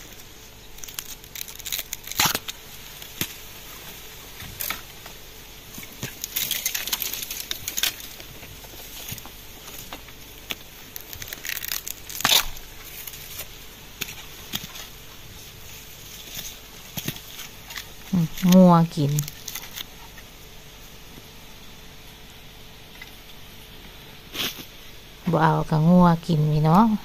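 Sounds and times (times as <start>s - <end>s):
dry leaves and twigs crackling: 0.0s - 20.3s.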